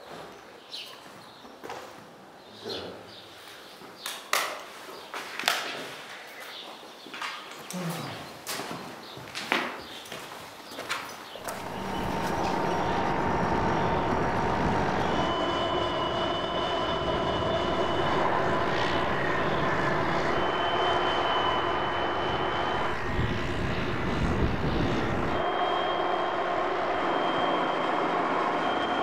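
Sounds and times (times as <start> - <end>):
propeller aircraft engine drone: 11.4 - 29.0
whining tones: 11.4 - 29.0.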